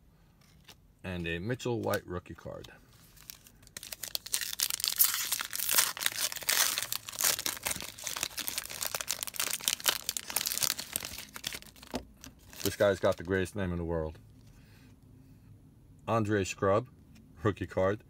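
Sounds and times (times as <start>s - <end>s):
foil wrapper tearing and crinkling: 3.2s - 13.3s.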